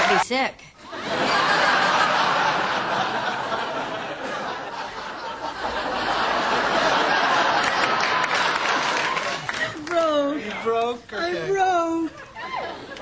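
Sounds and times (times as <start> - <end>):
audience laughing: 0.9 - 9.8, 12.1 - 13.0.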